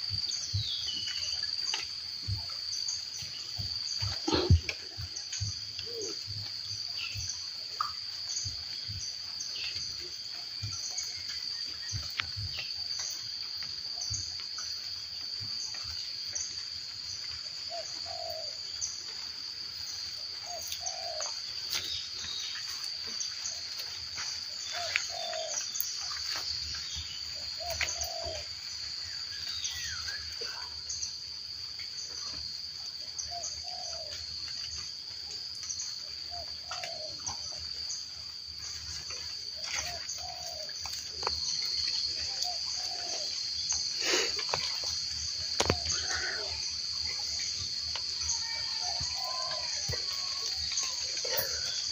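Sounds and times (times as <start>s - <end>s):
birds calling: 3.3s - 10.0s, 17.7s - 19.0s, 20.4s - 23.8s, 24.4s - 31.0s, 36.3s - 37.6s, 38.6s - 51.9s
high-pitched insect drone: 20.1s - 31.0s, 38.6s - 51.9s
low cooing call: 24.7s - 25.6s, 27.6s - 28.5s, 42.4s - 43.3s.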